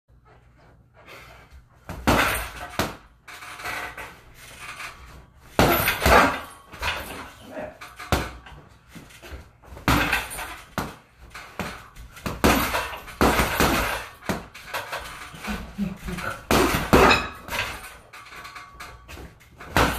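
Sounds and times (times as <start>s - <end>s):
punches thudding on heavy bag: 1.9s - 3.1s, 5.5s - 7.3s, 9.2s - 15.2s, 16.1s - 17.9s, 19.1s - 19.9s.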